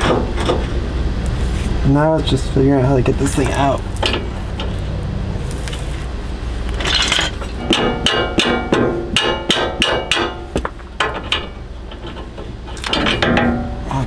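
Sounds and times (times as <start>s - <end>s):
hammer striking metal bar: 7.6s - 10.7s.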